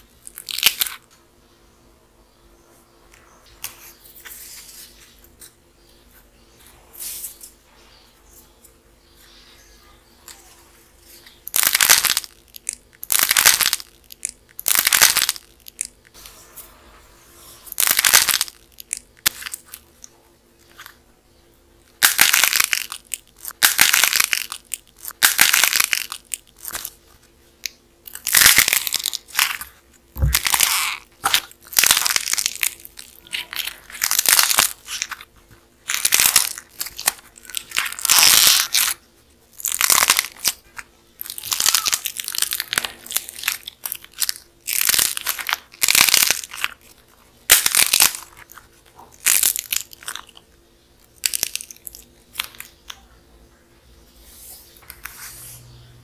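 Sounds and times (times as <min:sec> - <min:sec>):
dried clay crackling and crunching: 0:00.0 - 0:01.2, 0:08.4 - 0:16.2, 0:17.6 - 0:53.2.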